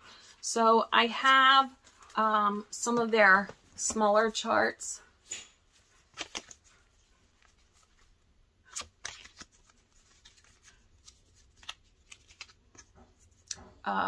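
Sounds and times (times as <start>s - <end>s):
paper rustling and clicking: 5.9s - 6.8s, 8.7s - 13.3s.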